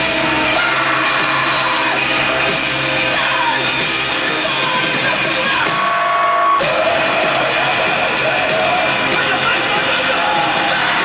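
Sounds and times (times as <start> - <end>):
shouted vocals: 0.0 - 2.1, 3.0 - 11.0
live rock band playing loud: 0.0 - 11.0.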